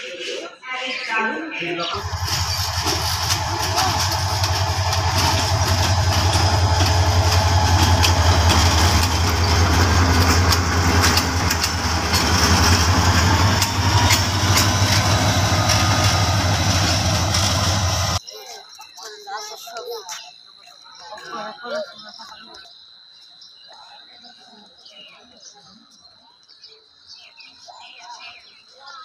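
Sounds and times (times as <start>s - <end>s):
diesel locomotive engine drone: 1.8s - 18.2s.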